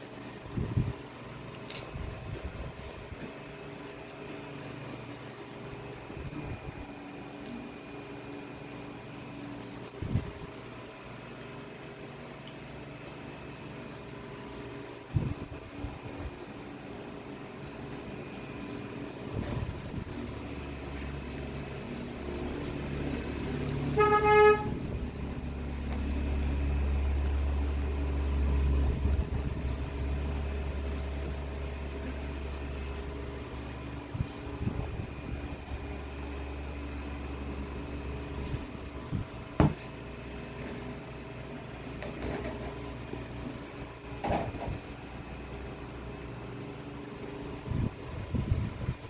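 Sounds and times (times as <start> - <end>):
short horn toot: 23.9 - 25.0
low rumble: 24.6 - 31.2.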